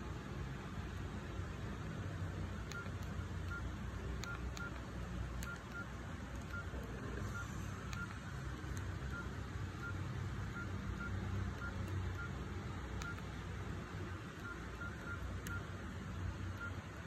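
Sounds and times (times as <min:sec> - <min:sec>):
phone keypad beeps: 0:02.4 - 0:13.4, 0:14.2 - 0:15.8, 0:16.4 - 0:16.9
phone key clicks: 0:02.6 - 0:06.8.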